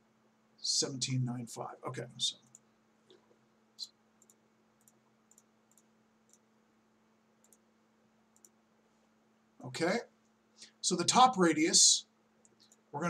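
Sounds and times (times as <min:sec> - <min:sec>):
computer mouse clicks: 0:02.4 - 0:03.2, 0:04.2 - 0:06.5, 0:07.4 - 0:07.7, 0:08.3 - 0:08.6, 0:12.4 - 0:12.9.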